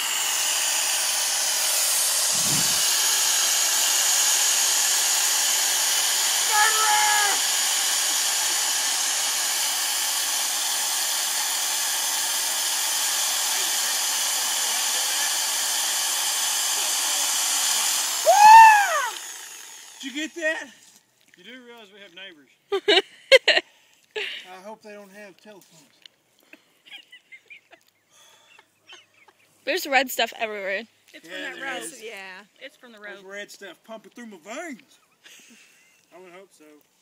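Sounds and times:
reciprocating saw cutting: 0.0 - 20.7
person shouting: 6.4 - 7.5, 18.2 - 19.2.

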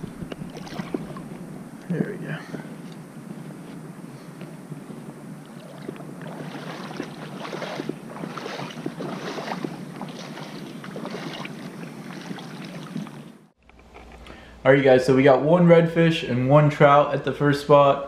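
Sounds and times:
shallow water splashing: 0.0 - 1.8, 2.4 - 13.6
wind on microphone: 0.0 - 13.5.

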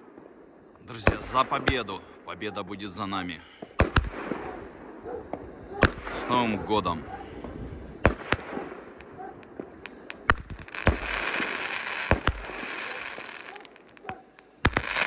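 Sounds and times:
fireworks bangs: 0.0 - 2.2, 3.5 - 6.7, 7.3 - 15.0
fireworks crackling hiss: 7.3 - 15.0.

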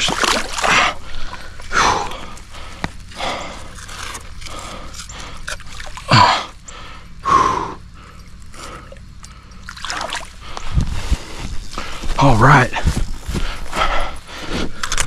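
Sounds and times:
water sloshing and trickling: 0.0 - 6.9, 8.0 - 10.8.

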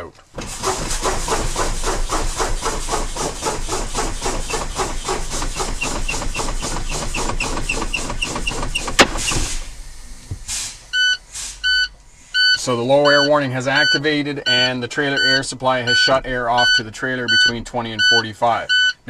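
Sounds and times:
brake valve popping: 0.3 - 10.5
air brake puffs: 0.4 - 12.6.

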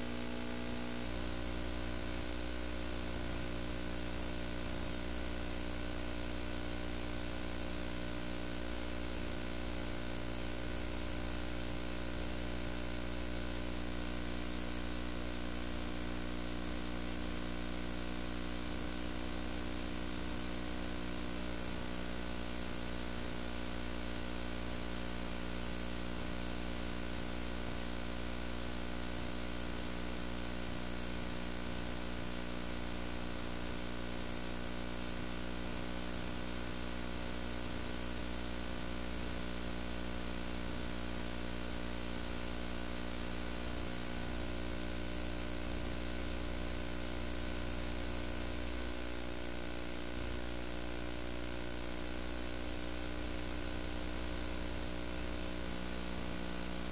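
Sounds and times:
electrical hum with hiss: 0.0 - 56.9.

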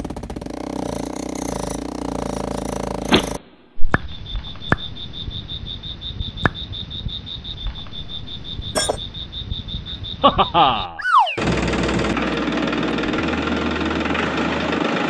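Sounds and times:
toy motor running: 0.7 - 3.4
pulsing high chirp: 10.8 - 11.5.

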